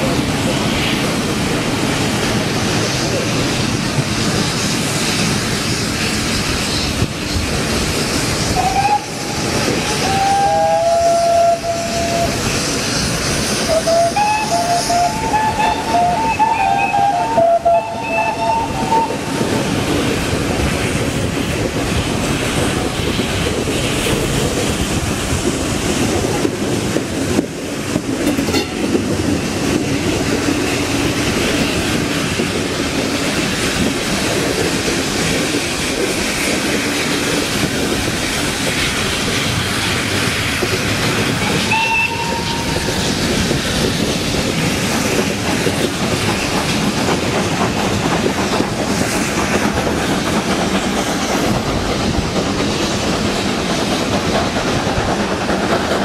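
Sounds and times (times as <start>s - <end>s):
steam train running noise: 0.0s - 56.0s
steam locomotive whistle blasts: 8.6s - 9.4s, 10.0s - 12.5s, 13.7s - 19.4s, 41.4s - 42.9s.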